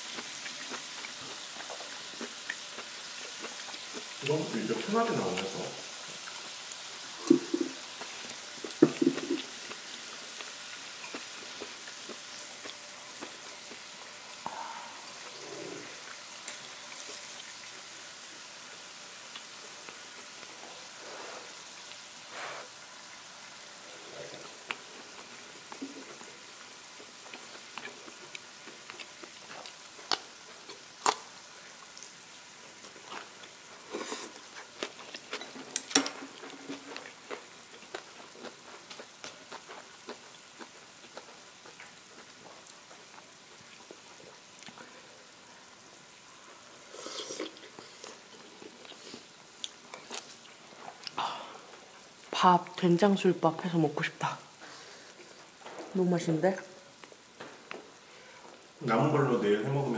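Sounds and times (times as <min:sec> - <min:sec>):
beef sizzling on a grill pan: 0:00.0 - 0:59.9
sharp clicks and mouth noises: 0:27.3 - 0:31.2.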